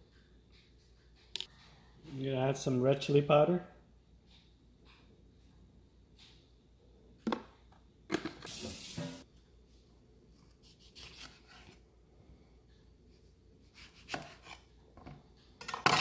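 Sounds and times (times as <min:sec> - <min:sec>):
knife cutting lemon: 0:10.6 - 0:11.8, 0:13.6 - 0:14.7.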